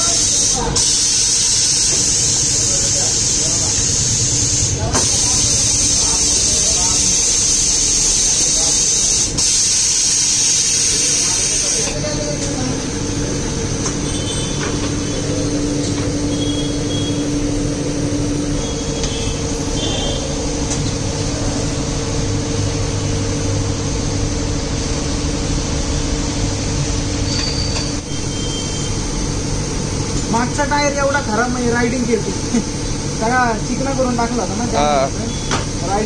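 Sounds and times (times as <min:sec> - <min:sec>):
workshop machinery humming: 0:00.0 - 0:36.0
faint squeaks or clinks: 0:27.3 - 0:28.8.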